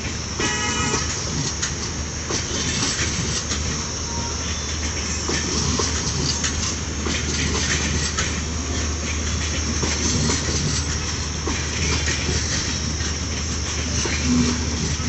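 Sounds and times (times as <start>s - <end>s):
train coaches rolling past: 0.0s - 15.0s
wheels knocking on rail joints: 4.6s - 15.0s.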